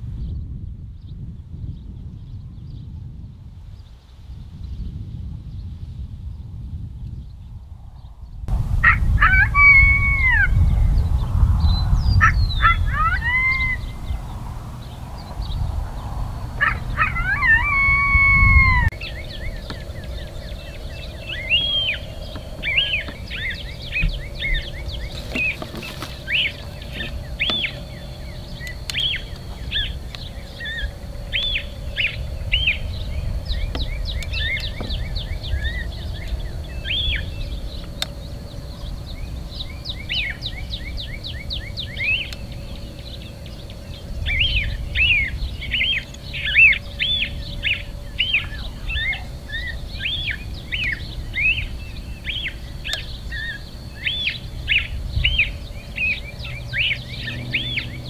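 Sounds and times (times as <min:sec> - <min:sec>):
small birds chirping: 0:00.0 - 0:58.0
steady low rumble: 0:00.0 - 0:58.0
thin steady high tone: 0:12.8 - 0:58.0.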